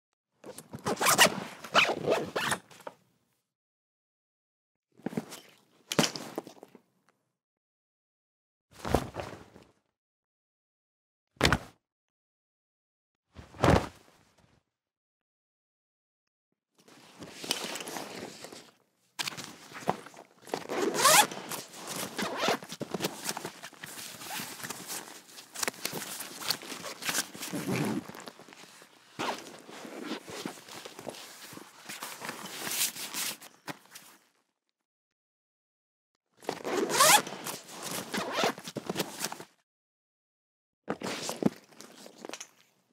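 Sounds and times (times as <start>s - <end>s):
backpack zipper rasping: 0.9s - 2.6s, 20.5s - 24.4s, 26.6s - 28.4s, 36.4s - 39.1s
backpack rustling and clicks: 17.2s - 34.0s, 36.4s - 39.4s
bag handling noise: 19.4s - 31.2s.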